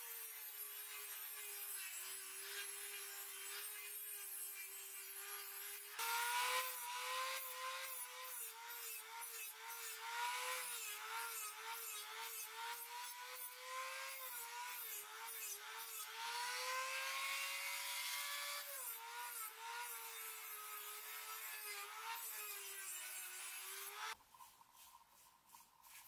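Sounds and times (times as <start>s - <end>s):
rasping hiss of sanding: 21.5s - 26.0s.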